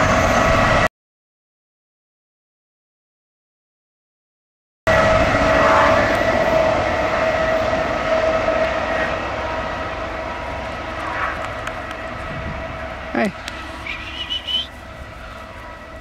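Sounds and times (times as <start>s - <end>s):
diesel locomotive and train rumbling: 0.0s - 0.9s, 4.9s - 16.0s
high whine: 4.9s - 16.0s.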